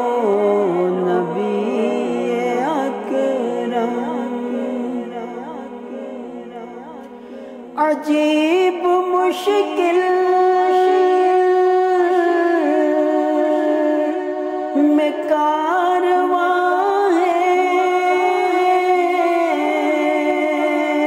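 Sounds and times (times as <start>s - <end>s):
man singing devotional verse: 0.0s - 21.0s.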